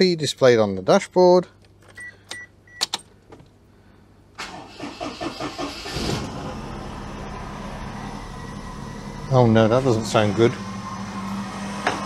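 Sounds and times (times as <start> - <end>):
engine cranking and idling: 4.4 - 12.0.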